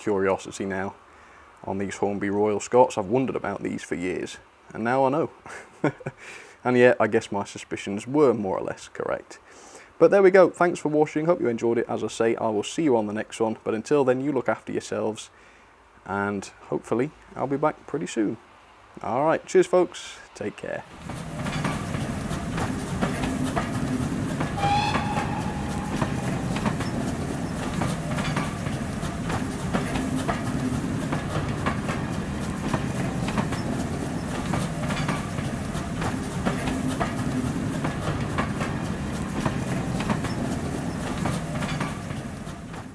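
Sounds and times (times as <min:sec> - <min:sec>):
railway carriages rumbling past: 0:20.8 - 0:42.9
wheels clicking over rail joints: 0:20.9 - 0:42.9
brief high tone: 0:24.6 - 0:27.2.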